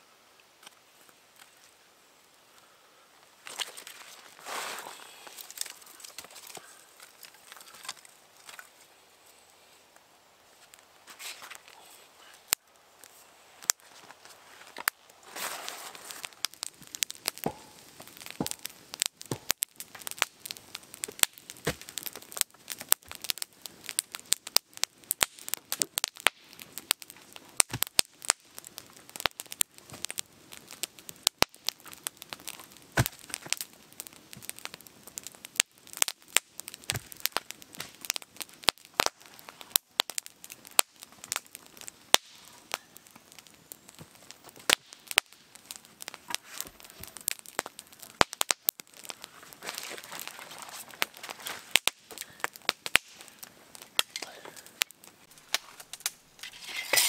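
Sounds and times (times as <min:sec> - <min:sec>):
campfire crackling and popping: 0:00.3 - 0:57.0.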